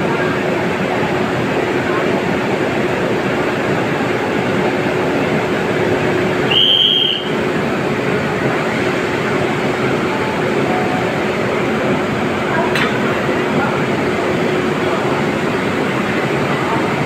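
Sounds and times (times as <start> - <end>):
constant hum: 0.0 - 17.0
locomotive whirring: 0.0 - 17.0
short high-pitched whistle: 6.5 - 7.4.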